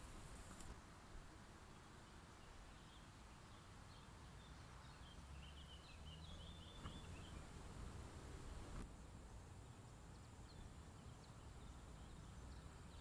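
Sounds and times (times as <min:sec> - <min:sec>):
bird twittering: 0:04.9 - 0:07.5.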